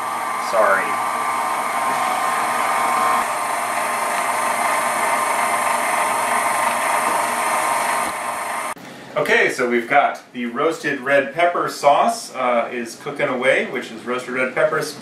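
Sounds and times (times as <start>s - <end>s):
stand mixer motor running: 0.0s - 8.8s.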